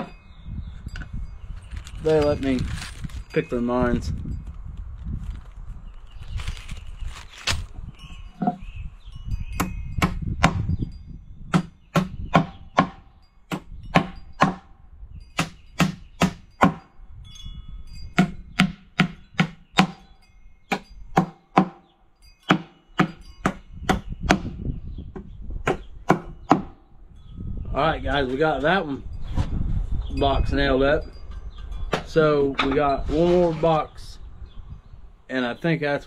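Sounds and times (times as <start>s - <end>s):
hammer striking nails into wood: 11.5s - 14.7s, 15.4s - 16.8s, 18.2s - 20.0s, 20.7s - 21.8s, 22.5s - 24.5s.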